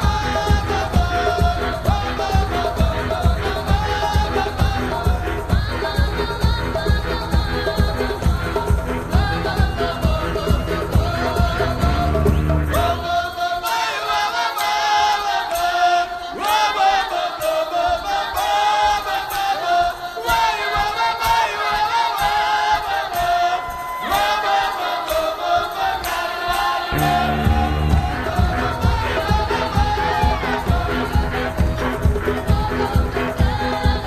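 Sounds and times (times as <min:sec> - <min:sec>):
ticking percussion: 0:00.0 - 0:34.0
voices singing folk song: 0:00.0 - 0:34.0
bass and low drums: 0:11.0 - 0:13.1, 0:27.0 - 0:32.8.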